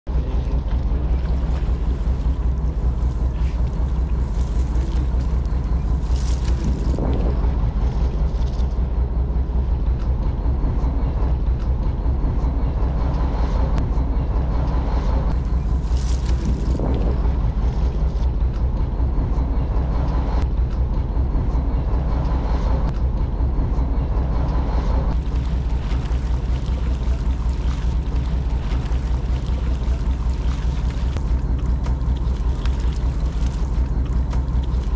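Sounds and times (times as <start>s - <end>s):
boat engine droning: 0.0s - 34.9s
wind on microphone: 0.3s - 9.4s, 15.2s - 20.4s.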